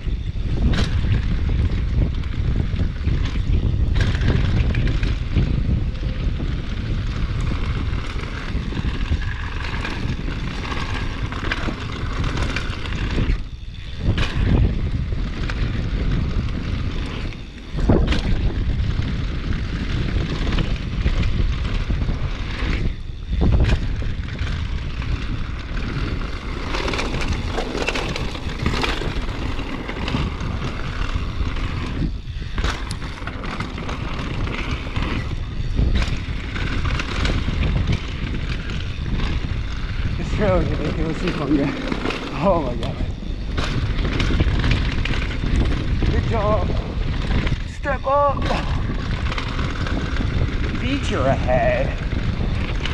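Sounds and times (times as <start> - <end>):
tyres rumbling on dirt trail: 0.0 - 52.9
wind rushing over microphone: 0.0 - 52.9.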